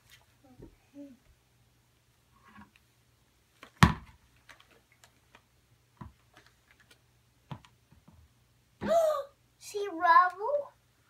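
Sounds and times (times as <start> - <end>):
hollow egg thumping on wooden floor: 3.6 - 4.2.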